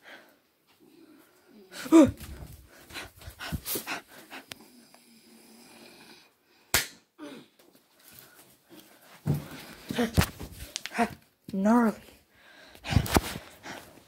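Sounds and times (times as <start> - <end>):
loud sharp snap: 6.7 - 7.1
short rustles: 12.8 - 14.0.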